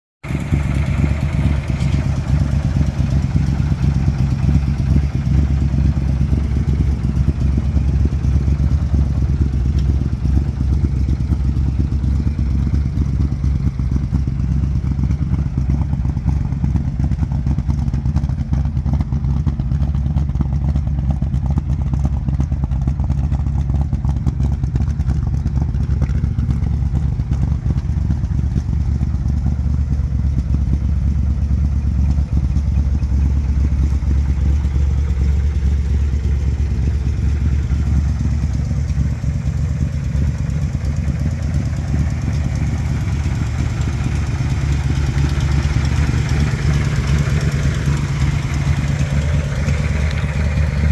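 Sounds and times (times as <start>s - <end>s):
car engine idling: 0.2s - 50.9s.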